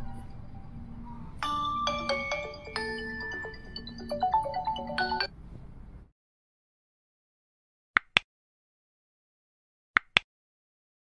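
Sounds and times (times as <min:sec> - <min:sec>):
marimba-like music: 0:00.0 - 0:05.3.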